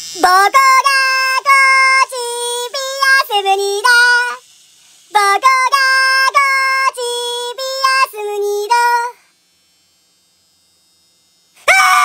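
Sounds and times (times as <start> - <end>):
high synthetic sung melody: 0.2 - 4.4, 5.1 - 9.2.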